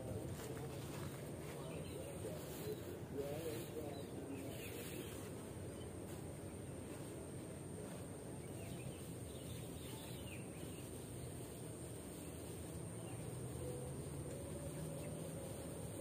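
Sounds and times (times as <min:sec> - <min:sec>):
faint bird chirps: 0:07.9 - 0:11.5.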